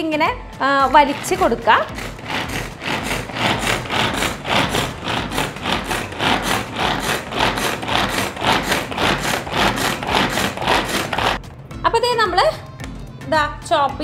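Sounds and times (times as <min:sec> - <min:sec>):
pull cord zipping: 0:00.9 - 0:11.4.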